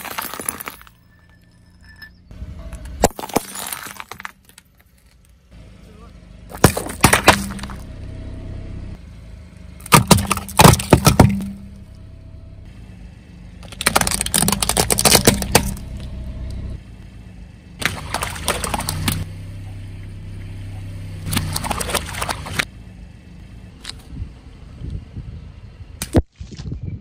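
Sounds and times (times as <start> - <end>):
car engine humming: 0.0 - 26.0
plastic cracking under tyre: 13.6 - 15.8.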